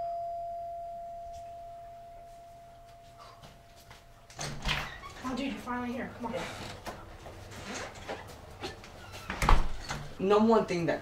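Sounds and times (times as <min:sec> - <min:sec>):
doorbell chime tone: 0:00.0 - 0:03.7.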